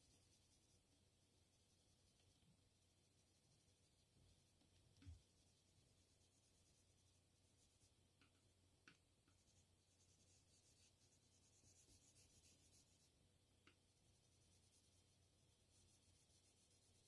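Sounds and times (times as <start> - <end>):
pencil scratching on paper: 9.3 - 13.1, 14.0 - 17.0.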